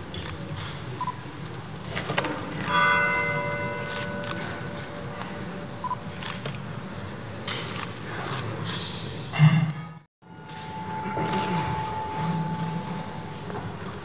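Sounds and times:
low crowd murmur: 0:00.0 - 0:09.8, 0:10.6 - 0:14.0
church bell ringing: 0:02.2 - 0:06.1, 0:10.0 - 0:14.0.

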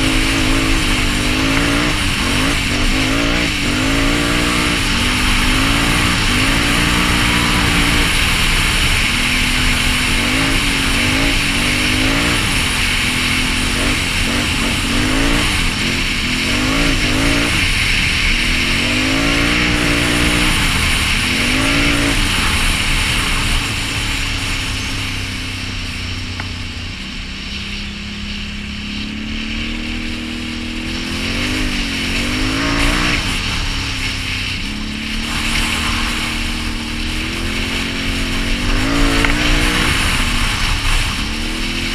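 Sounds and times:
atv engine revving: 0:00.0 - 0:41.9.

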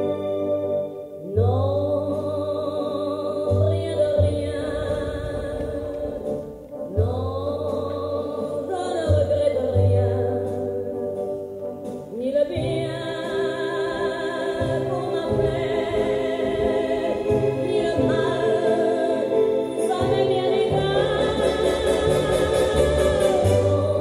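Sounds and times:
choir-like singing: 0:13.3 - 0:24.0.

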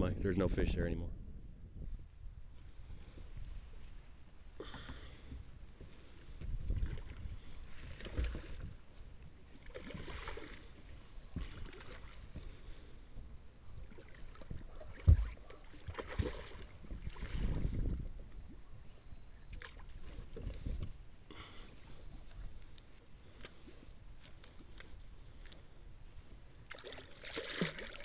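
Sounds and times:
water lapping against boat hull: 0:09.5 - 0:13.2, 0:13.8 - 0:18.6, 0:26.7 - 0:28.0.

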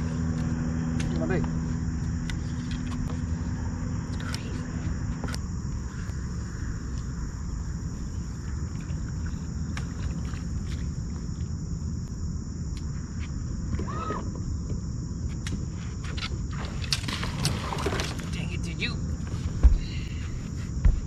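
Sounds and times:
insects chirring: 0:00.0 - 0:21.0.

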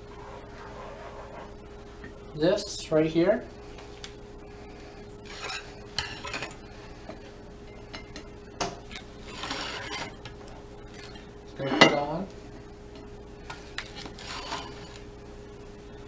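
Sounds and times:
faint steady hum: 0:00.0 - 0:16.0
spoon scraping colander: 0:05.2 - 0:06.6, 0:09.0 - 0:10.2, 0:13.9 - 0:15.0.

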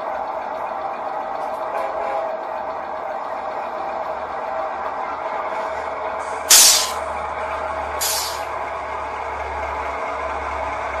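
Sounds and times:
diesel locomotive running: 0:00.0 - 0:11.0
air brake hissing: 0:06.2 - 0:07.1, 0:08.0 - 0:08.5.

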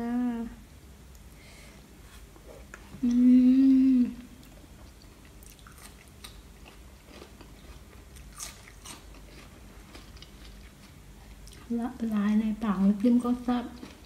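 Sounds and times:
woman humming mmm: 0:03.0 - 0:04.3
chewing and mouth clicks: 0:04.4 - 0:11.7.

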